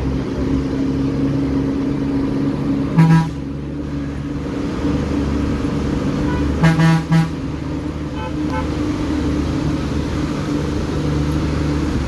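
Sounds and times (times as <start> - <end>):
bus engine droning: 0.0 - 12.0
bus horn toots: 2.9 - 3.5, 6.2 - 7.5, 8.1 - 8.9.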